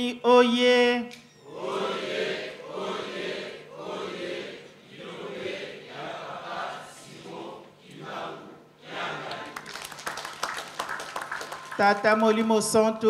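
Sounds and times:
congregation chanting in unison: 1.4 - 10.2.

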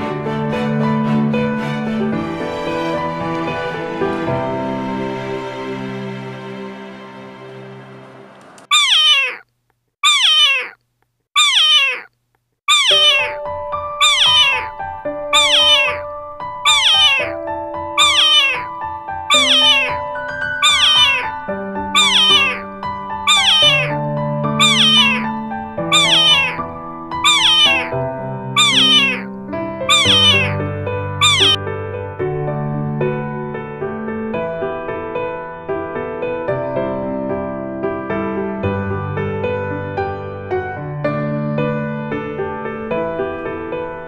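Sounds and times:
cat meowing: 8.7 - 9.4, 10.0 - 10.8, 11.4 - 12.1, 12.7 - 13.4, 14.0 - 17.4, 18.0 - 22.7, 23.3 - 28.0, 28.6 - 29.3, 29.9 - 31.6.

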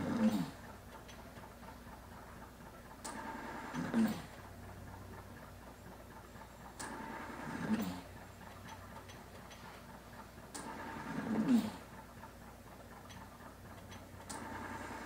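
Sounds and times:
ventilator click: 0.0 - 7.9
ventilator hum: 0.0 - 15.0.

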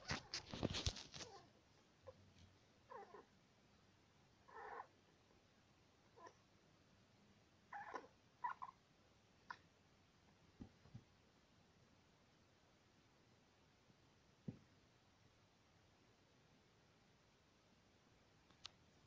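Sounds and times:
hamster squeaking: 7.7 - 8.8.

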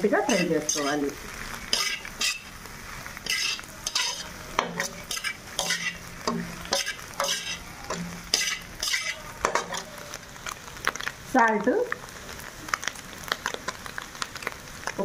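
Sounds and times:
vegetables sizzling in a pan: 0.0 - 15.0
metal spatula scraping a pan: 0.2 - 2.6, 3.2 - 10.0.

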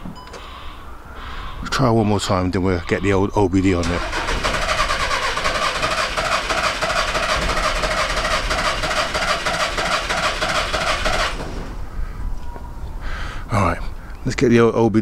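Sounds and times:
starter motor cranking engine: 3.8 - 11.7.

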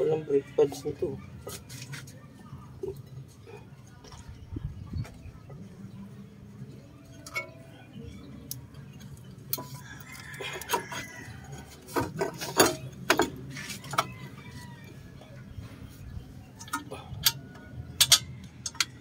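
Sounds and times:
metal clinks and knocks: 18.0 - 19.0.

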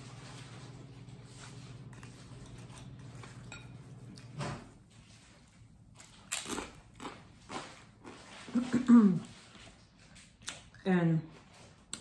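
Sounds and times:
low steady hum: 0.0 - 12.0
chewing toast: 5.9 - 8.6.

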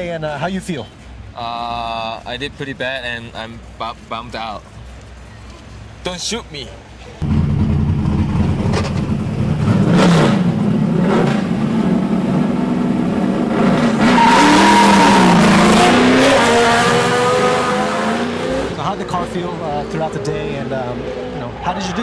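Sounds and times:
car engines revving: 7.2 - 22.0
tyres squealing: 14.0 - 16.4.

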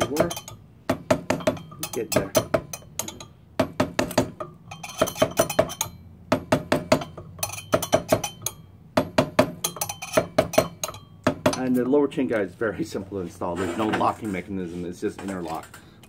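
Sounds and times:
hammer tapping on metal cylinder: 0.0 - 11.8.

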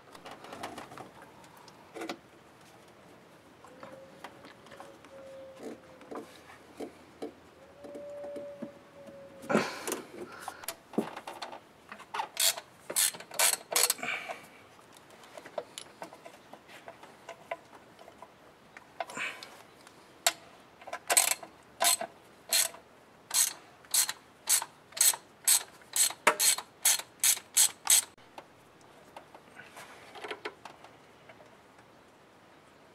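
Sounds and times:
socket ratchet clicking: 12.4 - 14.0, 21.1 - 28.1.

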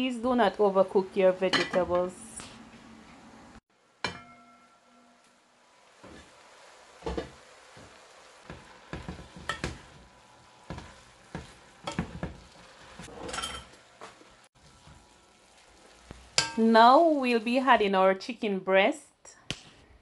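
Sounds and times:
light sizzle: 0.0 - 19.8.

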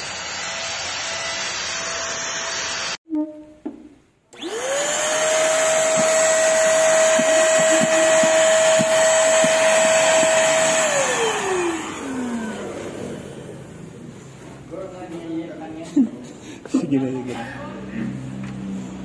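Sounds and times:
handheld vacuum cleaner whine: 4.3 - 13.8.

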